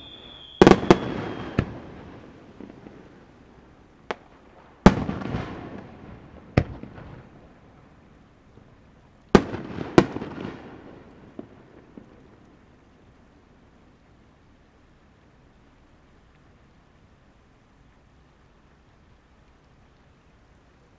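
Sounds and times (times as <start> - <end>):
firework shells bursting: 0.0 - 2.0
faint firework pops: 0.4 - 2.0, 4.0 - 5.9.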